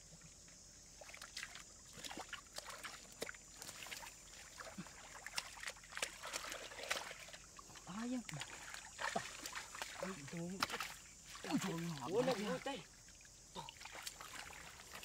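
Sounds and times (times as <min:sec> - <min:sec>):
water sloshing and trickling: 0:00.0 - 0:15.0.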